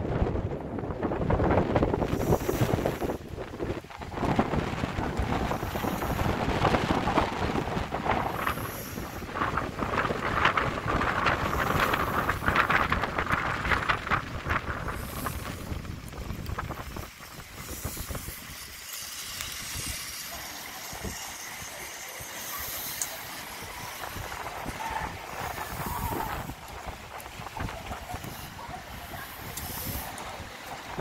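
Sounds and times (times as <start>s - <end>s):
steady rush of air: 0.0s - 31.0s
zip-line pulleys rumbling on cable: 0.0s - 31.0s.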